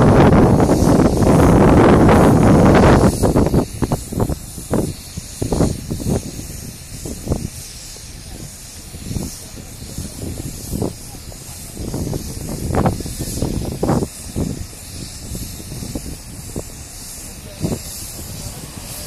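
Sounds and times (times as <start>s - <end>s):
steady hiss: 0.0s - 19.0s
wind gusts on microphone: 0.0s - 19.0s.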